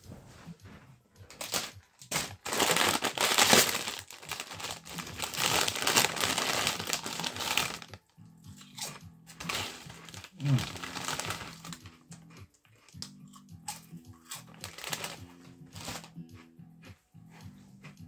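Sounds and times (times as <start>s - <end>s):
wrapping material crinkling: 1.3s - 8.0s, 9.3s - 11.8s, 14.5s - 15.2s, 15.8s - 16.1s.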